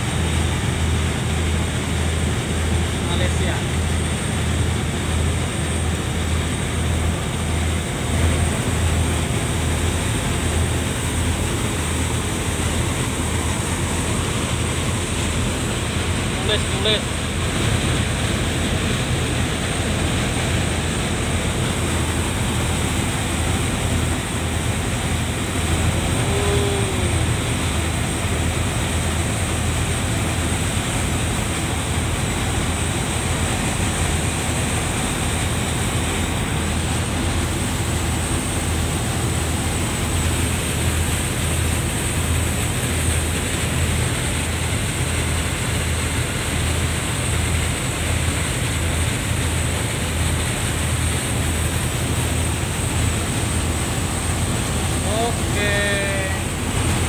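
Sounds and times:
churning wake rushing: 0.0 - 57.0
ferry engines droning: 0.0 - 57.0
wind: 0.0 - 57.0.

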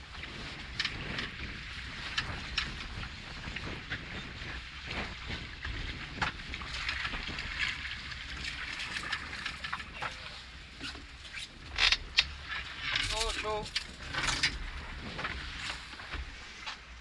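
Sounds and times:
wind buffeting microphone: 0.0 - 10.8
water sloshing against boat hull: 0.0 - 17.0.

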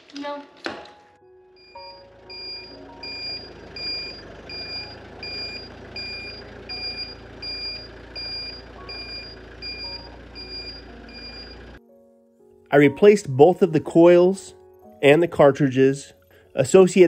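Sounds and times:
back-up alarm beeping: 1.5 - 11.8
engine rumble: 1.5 - 11.8.

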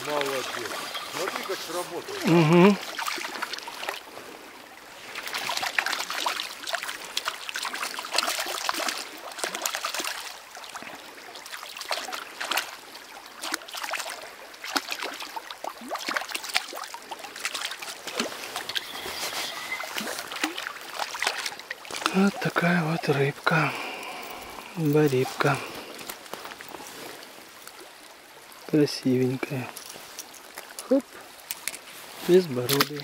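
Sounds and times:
river water trickling and splashing: 0.0 - 33.0
crackles and clicks: 21.4 - 27.9, 28.6 - 33.0.

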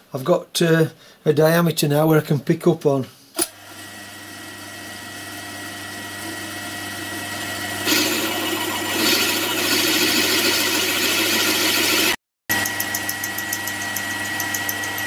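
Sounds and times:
drilling machine motor hum and whine: 3.8 - 15.0
drill bit cutting iron: 4.5 - 15.0.

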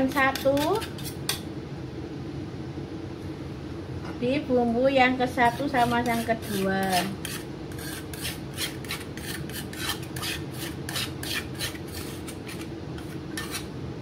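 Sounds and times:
spice paste grinding by hand: 0.0 - 1.4, 5.5 - 13.7.

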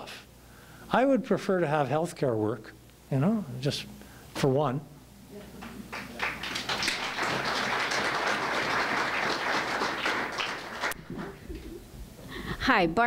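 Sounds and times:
audience applauding: 5.6 - 11.6.

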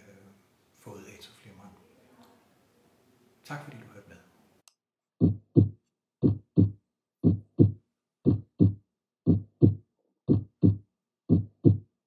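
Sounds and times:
heartbeat thumping: 5.2 - 12.0.

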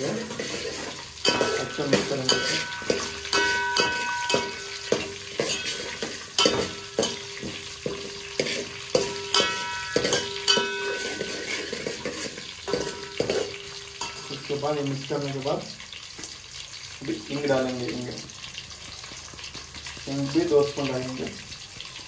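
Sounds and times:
spoon knocking and scraping a pot: 0.0 - 14.7
frying sizzle: 0.0 - 22.0.

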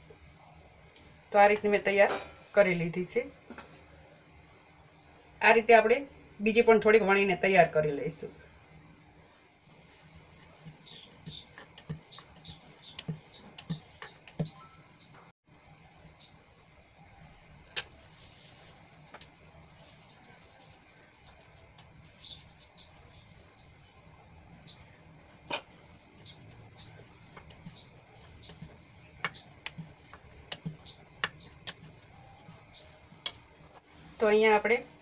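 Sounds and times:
high-pitched insect trill: 15.5 - 35.0.

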